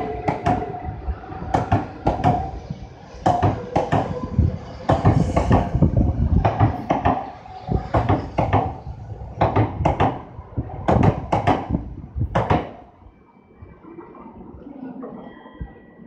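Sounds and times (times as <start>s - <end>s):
train wheels clacking over rail joints: 0.0s - 0.8s, 1.5s - 2.6s, 3.2s - 10.3s, 10.9s - 12.9s.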